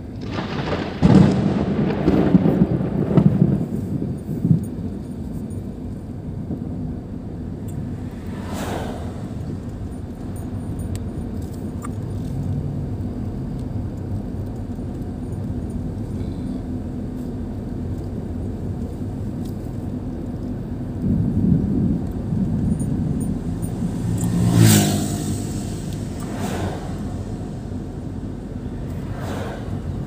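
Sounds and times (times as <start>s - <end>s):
car engine and tyre noise: 0.0s - 30.0s
motorcycle passing: 8.0s - 9.6s, 23.3s - 30.0s.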